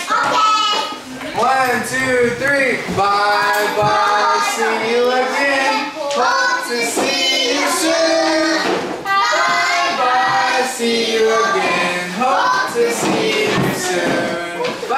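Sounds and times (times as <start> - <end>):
children singing over music: 3.0 - 14.9.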